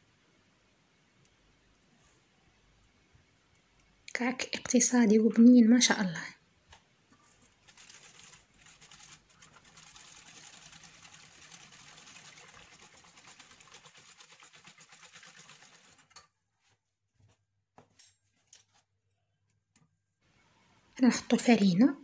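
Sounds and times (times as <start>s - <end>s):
whisk beating liquid in metal bowl: 7.6s - 16.2s.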